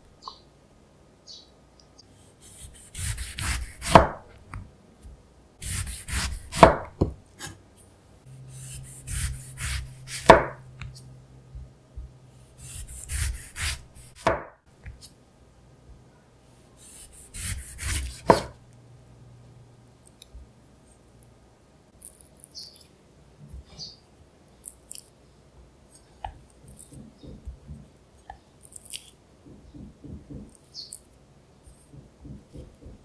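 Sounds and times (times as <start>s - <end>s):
knife sawing through orange rind: 2.4s - 4.0s, 5.6s - 6.7s, 8.4s - 10.4s, 12.5s - 14.2s, 16.8s - 18.4s.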